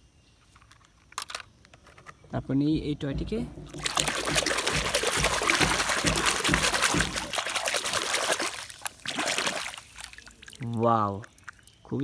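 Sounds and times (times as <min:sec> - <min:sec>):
water splashing: 0:03.1 - 0:11.9.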